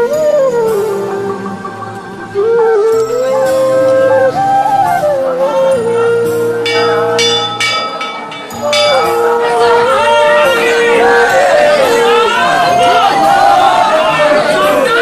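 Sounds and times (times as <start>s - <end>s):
gliding melody line: 6.7s - 9.5s
bright ringing strikes: 6.7s - 9.7s
low sustained tones: 6.7s - 9.7s.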